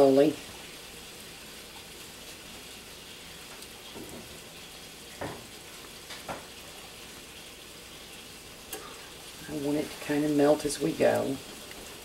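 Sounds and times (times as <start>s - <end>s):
sauce bubbling in pot: 0.0s - 12.0s
soft knock: 5.2s - 5.5s.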